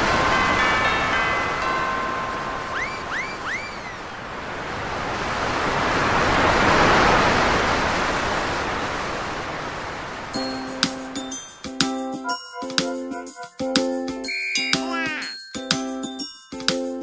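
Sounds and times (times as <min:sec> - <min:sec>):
sea surf washing onto beach: 0:00.0 - 0:11.1
rising-and-falling calls: 0:02.8 - 0:04.1, 0:14.2 - 0:15.4.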